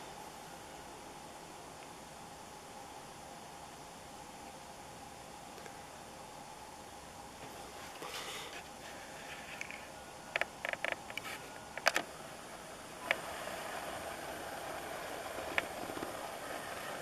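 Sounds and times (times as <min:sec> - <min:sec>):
lens zoom motor whirring: 0:13.0 - 0:17.0.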